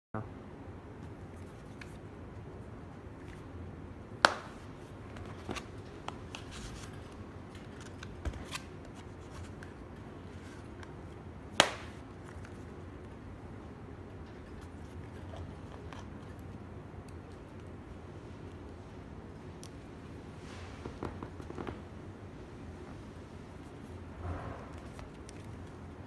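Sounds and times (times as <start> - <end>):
cards rustling: 4.2 - 13.2.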